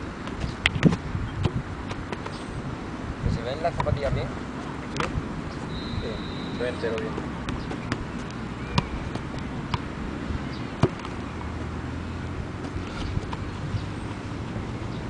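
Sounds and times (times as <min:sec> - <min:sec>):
low outdoor rumble: 0:00.0 - 0:15.0
boot kicking football: 0:00.2 - 0:02.4, 0:06.8 - 0:09.9, 0:10.6 - 0:11.3.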